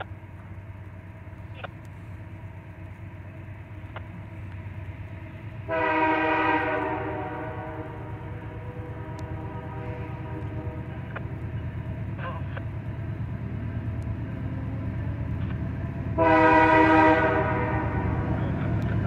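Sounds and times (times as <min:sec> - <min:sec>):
low rumble of train: 0:00.0 - 0:19.0
locomotive air horn: 0:05.7 - 0:11.2, 0:16.1 - 0:18.5.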